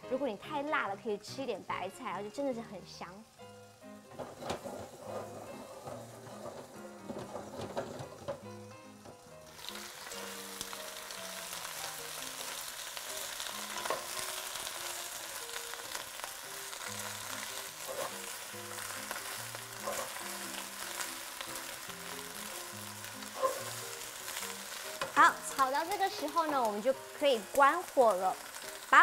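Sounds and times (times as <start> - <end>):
vegetables sizzling in hot oil: 0.0 - 29.0
wooden spatula scraping wok: 4.0 - 11.8, 13.2 - 15.2, 15.9 - 26.8.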